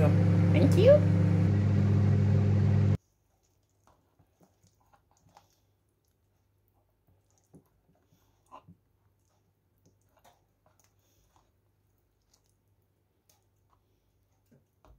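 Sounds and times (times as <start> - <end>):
microwave oven humming: 0.0 - 3.0
faint taps and clicks stirring: 3.2 - 14.9.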